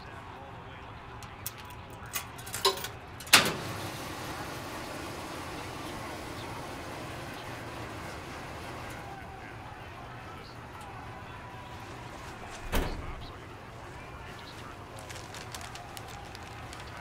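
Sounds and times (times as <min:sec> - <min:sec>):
light clicks and clinks: 0:01.2 - 0:03.3
washing machine humming: 0:02.6 - 0:17.0.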